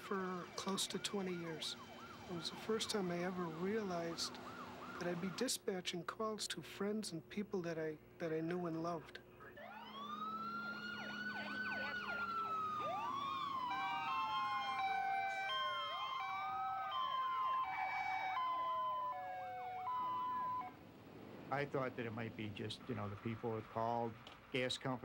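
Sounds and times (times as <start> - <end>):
siren wailing: 0.2 - 5.4, 9.4 - 20.8
siren yelps: 0.4 - 5.2, 9.5 - 20.8
hi-lo two-tone siren: 9.6 - 20.8.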